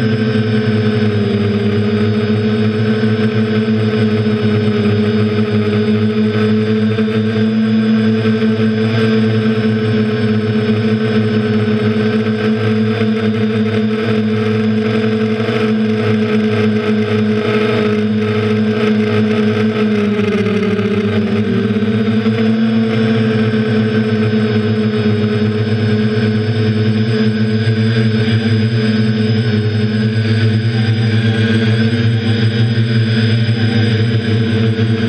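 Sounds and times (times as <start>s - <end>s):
drone propellers whining: 0.0s - 35.0s.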